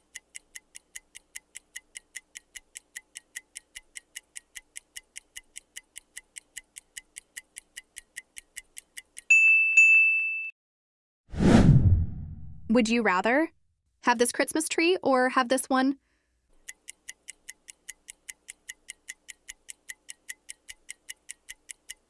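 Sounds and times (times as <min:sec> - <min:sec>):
clock ticking: 0:00.0 - 0:09.3, 0:16.5 - 0:22.0.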